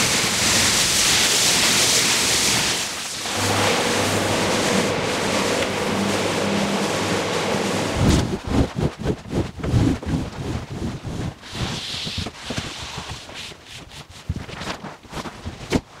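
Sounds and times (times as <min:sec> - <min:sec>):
water jet hissing: 0:00.0 - 0:08.4
scrubbing machine humming: 0:00.0 - 0:13.0.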